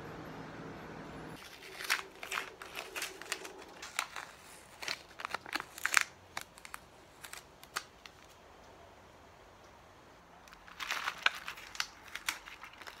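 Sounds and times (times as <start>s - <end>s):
tape peeling off plastic: 1.4s - 8.4s, 10.5s - 13.0s.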